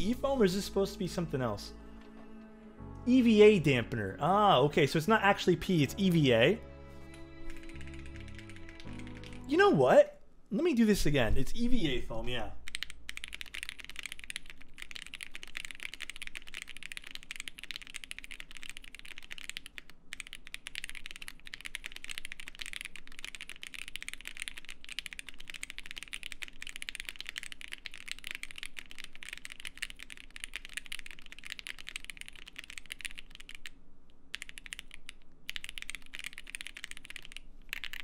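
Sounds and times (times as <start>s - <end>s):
mechanical keyboard typing: 7.1s - 9.9s, 12.2s - 38.0s.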